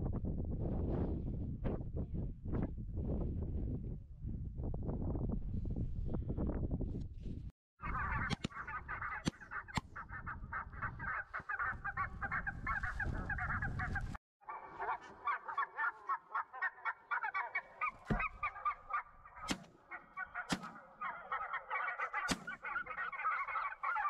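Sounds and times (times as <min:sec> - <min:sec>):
low wind rumble: 0:00.0 - 0:14.2
geese honking: 0:07.8 - 0:24.0.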